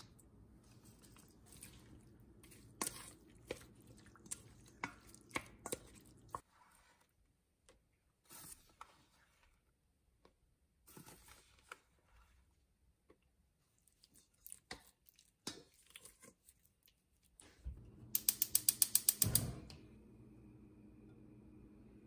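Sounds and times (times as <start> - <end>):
gas stove igniter clicking: 18.1 - 19.8.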